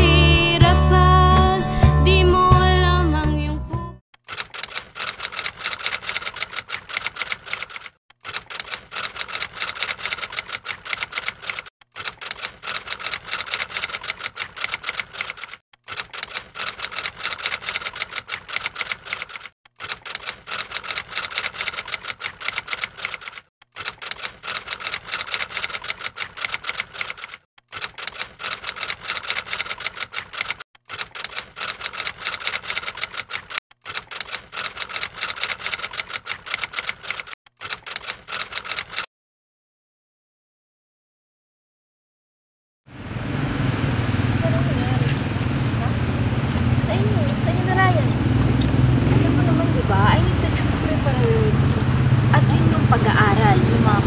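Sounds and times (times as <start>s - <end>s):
typewriter keys clacking: 4.2s - 39.1s.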